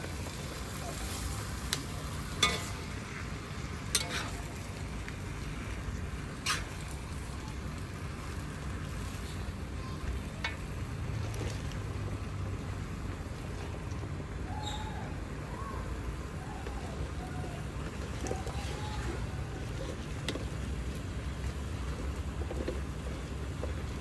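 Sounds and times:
greens sizzling in a wok: 0:00.0 - 0:24.0
spatula clanking against wok: 0:02.4 - 0:02.8, 0:03.9 - 0:04.4.

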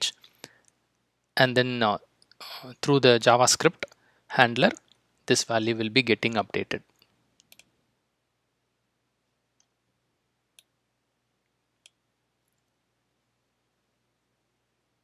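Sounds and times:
faint computer mouse clicks: 0:06.9 - 0:07.8.

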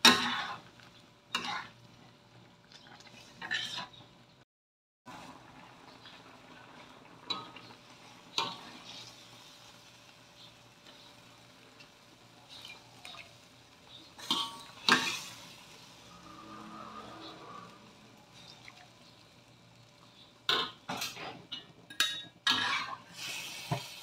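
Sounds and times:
metal spatula scraping in wok: 0:00.0 - 0:00.7, 0:01.3 - 0:01.8, 0:03.2 - 0:04.0, 0:14.0 - 0:18.5, 0:20.9 - 0:23.8.

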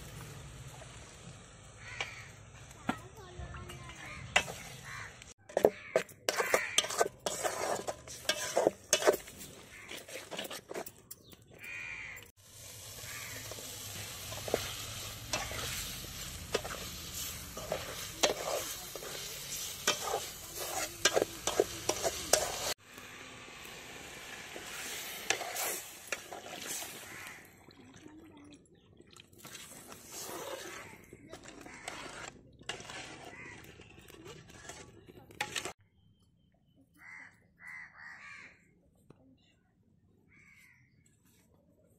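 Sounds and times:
paste sizzling in metal pan: 0:00.0 - 0:05.7, 0:06.3 - 0:10.5, 0:12.4 - 0:27.4, 0:29.7 - 0:35.8
metal spatula scraping pan: 0:03.6 - 0:11.2, 0:12.2 - 0:22.8, 0:24.5 - 0:27.2, 0:29.8 - 0:35.8.

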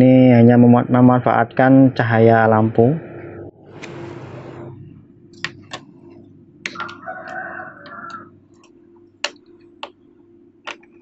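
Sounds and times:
steady low hum: 0:00.0 - 0:11.0
rooster crowing faintly: 0:06.7 - 0:08.4.

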